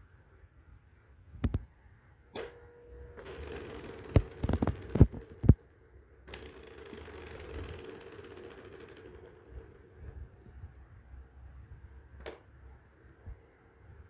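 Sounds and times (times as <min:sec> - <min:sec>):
plastic ball rolling in toy track: 0:03.2 - 0:05.6, 0:06.3 - 0:10.2.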